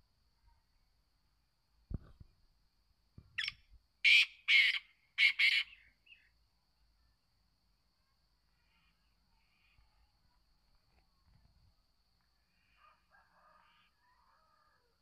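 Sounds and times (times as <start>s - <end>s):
bird calling harsh scratchy notes: 4.1s - 5.7s.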